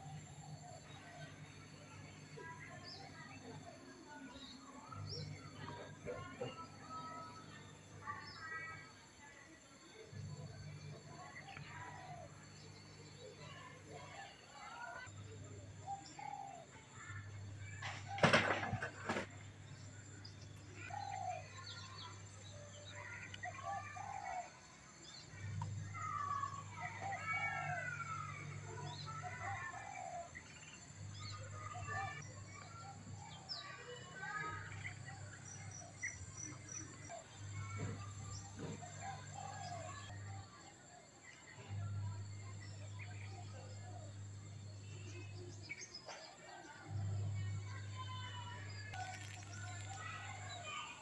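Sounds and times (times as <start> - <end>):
birds chirping: 10.0 - 51.0
low hum: 46.9 - 51.0.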